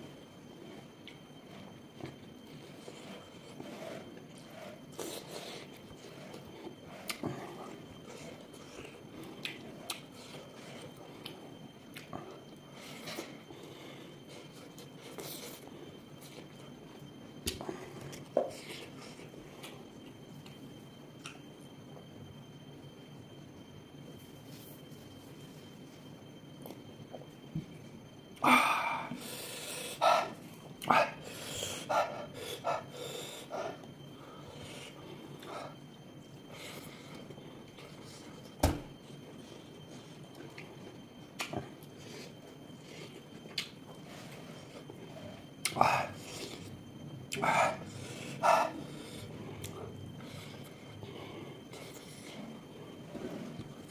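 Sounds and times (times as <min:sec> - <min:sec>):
low background noise: 0:00.0 - 0:53.9
chewing sounds: 0:00.6 - 0:13.3, 0:40.3 - 0:50.7.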